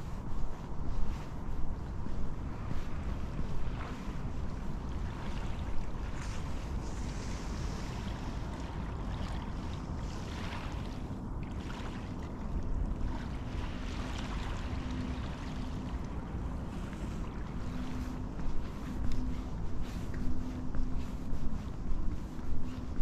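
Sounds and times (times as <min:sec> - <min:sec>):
footsteps: 0:00.0 - 0:08.3, 0:16.0 - 0:23.0
faint hum: 0:00.0 - 0:23.0
waves lapping on shingle: 0:00.0 - 0:23.0
wind buffeting microphone: 0:00.0 - 0:23.0.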